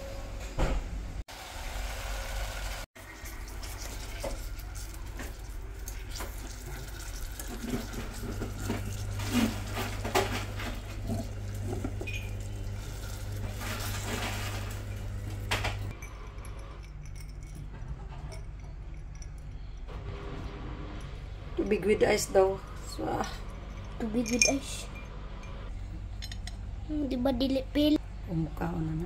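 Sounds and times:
steady low hum: 0:14.7 - 0:29.0.

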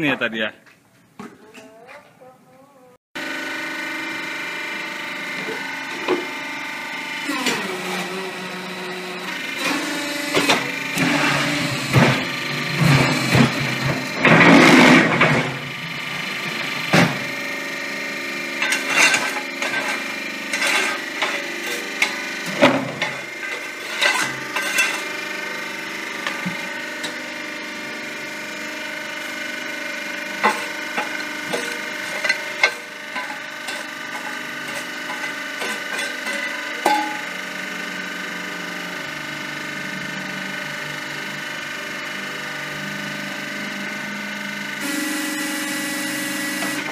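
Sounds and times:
motor and hydraulic pump humming: 0:03.2 - 0:46.9
knocks and clatter of pallets: 0:10.5 - 0:15.6.

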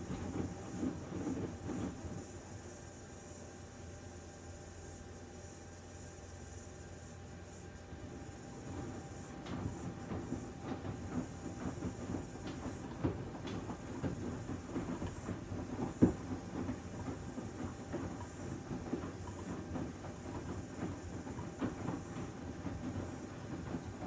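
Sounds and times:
washing machine drum tumbling: 0:08.6 - 0:24.0.

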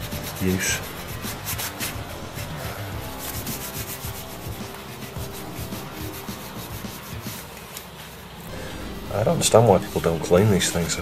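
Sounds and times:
tissue rubbing on plastic: 0:00.0 - 0:08.5.

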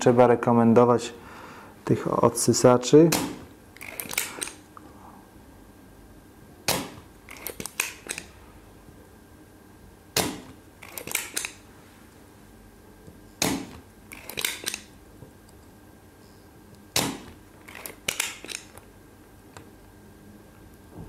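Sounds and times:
desoldering pump plunger snapping: 0:03.1 - 0:04.6.

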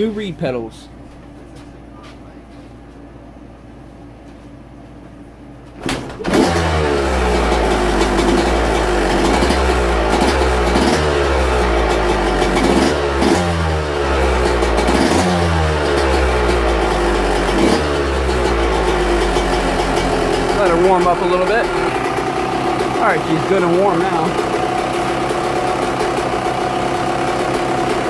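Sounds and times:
engine kick-starting: 0:05.7 - 0:28.0
two-stroke engine revving: 0:06.1 - 0:28.0.

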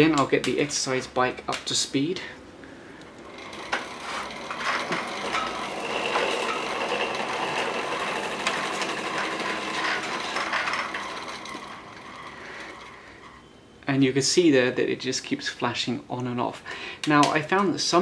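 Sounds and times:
exercise bike flywheel whirring: 0:02.8 - 0:13.8.

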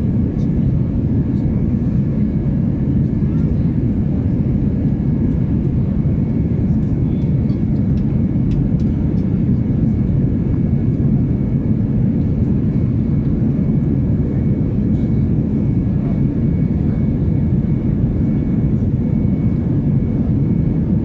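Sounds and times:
airplane cabin engine rumble: 0:00.0 - 0:21.0.

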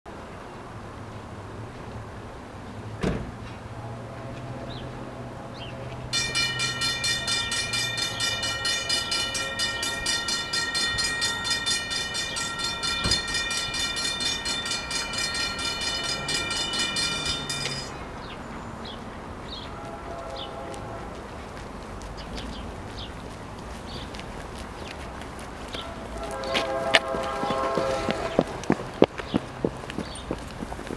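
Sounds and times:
crossing warning bell ringing: 0:06.1 - 0:19.2, 0:26.2 - 0:28.5.

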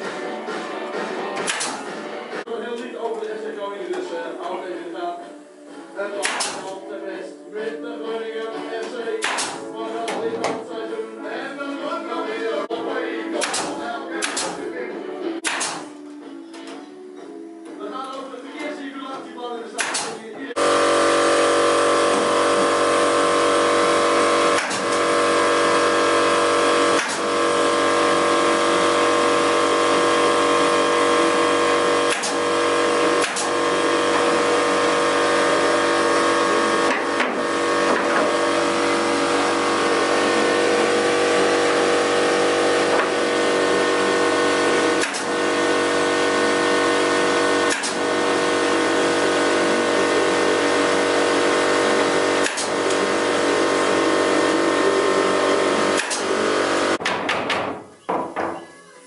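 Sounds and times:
pneumatic nail gun shots: 0:01.4 - 0:02.0, 0:06.2 - 0:06.7, 0:09.2 - 0:09.6, 0:13.4 - 0:14.6, 0:15.4 - 0:15.9, 0:19.8 - 0:54.9, 0:55.6 - 0:57.9
steady mechanical hum: 0:17.7 - 0:57.0.

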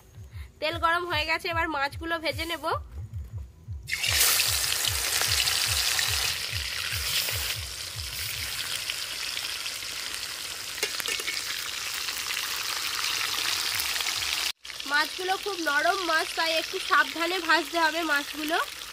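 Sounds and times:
fish frying in oil: 0:03.9 - 0:18.9.

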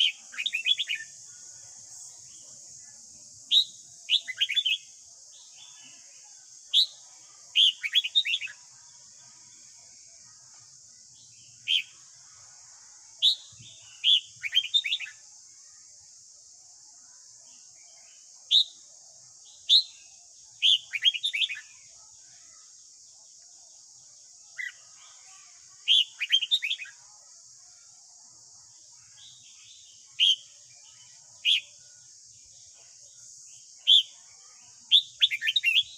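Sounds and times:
bulbul singing whistled notes: 0:03.4 - 0:05.8, 0:13.2 - 0:15.2.

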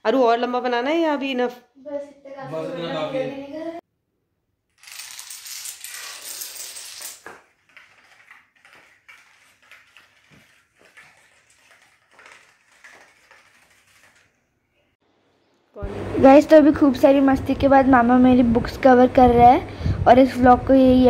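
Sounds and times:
dominoes toppling on hard floor: 0:04.8 - 0:14.3.

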